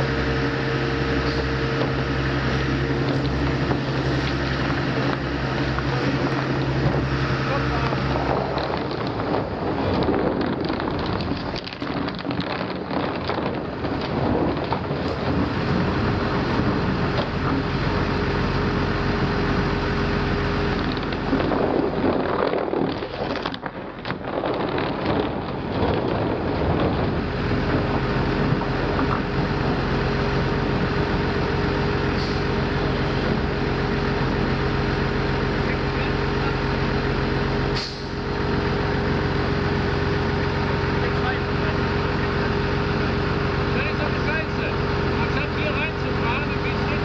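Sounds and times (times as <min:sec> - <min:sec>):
diesel engine running: 0:00.0 - 0:47.0.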